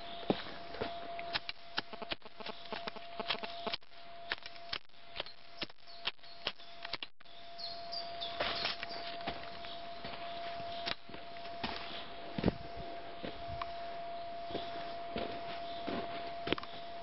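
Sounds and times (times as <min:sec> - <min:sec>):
sharp clicks: 0:01.2 - 0:07.2
faint steady high tone: 0:07.3 - 0:17.0.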